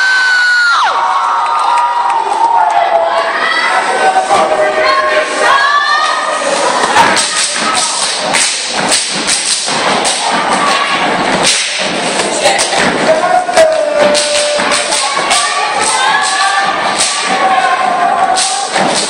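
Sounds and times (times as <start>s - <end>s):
audience shouting and cheering: 0.0s - 19.0s
stomping and clapping: 6.8s - 19.0s.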